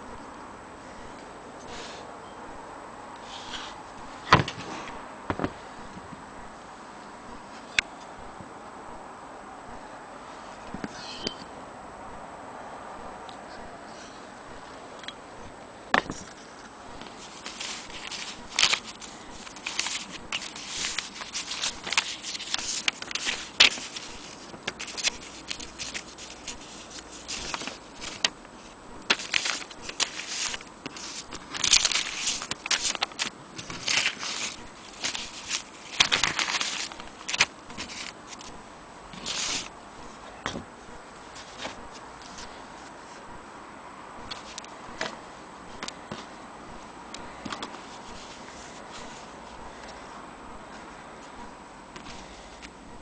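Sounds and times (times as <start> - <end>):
paper rustling and shuffling: 3.2 - 5.7, 16.0 - 43.4, 44.2 - 52.8.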